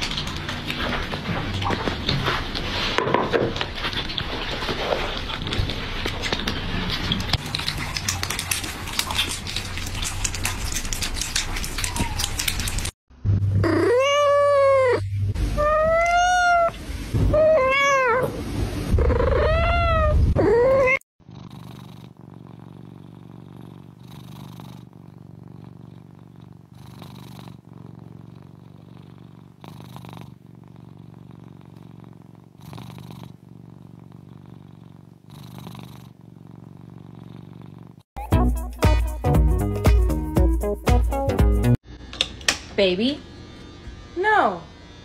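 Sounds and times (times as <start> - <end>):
kittens purring: 0.0 - 38.2
kitten meowing: 11.8 - 12.5, 13.6 - 18.3, 19.0 - 21.0.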